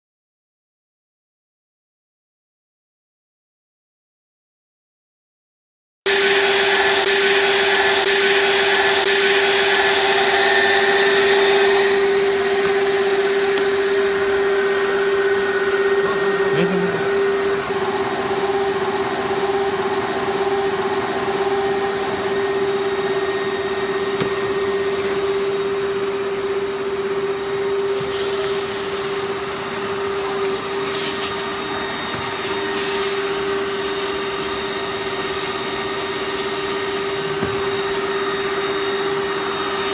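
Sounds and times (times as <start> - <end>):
constant machine whine: 6.1 - 39.9
machine motors and blowers droning: 6.1 - 39.9
hiss: 27.8 - 38.8.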